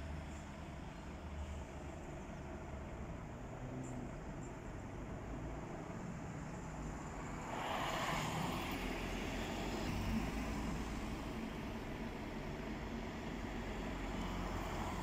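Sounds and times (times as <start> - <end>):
low steady engine rumble: 0.0 - 7.2
car passing close by: 7.2 - 11.5.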